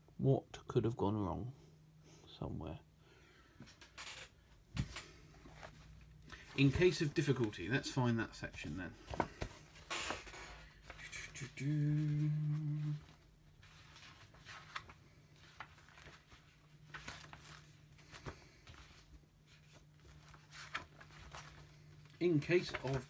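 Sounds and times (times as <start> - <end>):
faint electrical hum: 0.0 - 23.0
paper rustling: 4.8 - 23.0
man humming: 11.0 - 13.2.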